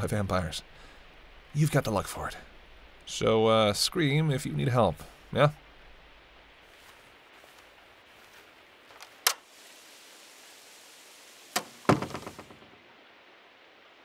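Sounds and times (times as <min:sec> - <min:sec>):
rain hiss: 0:00.0 - 0:14.0
door shutting with a thud: 0:11.6 - 0:12.6.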